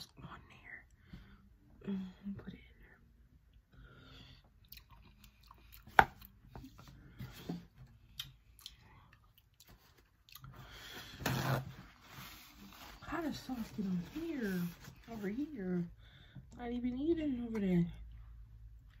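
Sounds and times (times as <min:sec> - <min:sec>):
chewing: 0:04.6 - 0:06.4, 0:08.1 - 0:10.6
paper towel rustling: 0:11.0 - 0:15.5.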